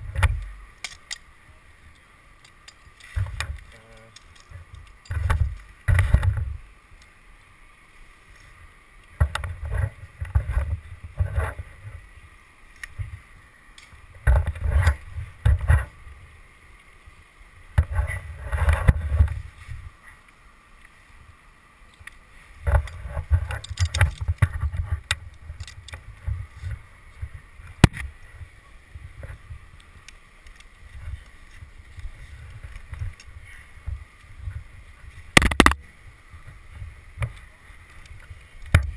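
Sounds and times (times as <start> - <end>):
scraping and rubbing against bark: 0.0 - 6.6, 22.6 - 28.1
sharp clicks: 35.4 - 35.8.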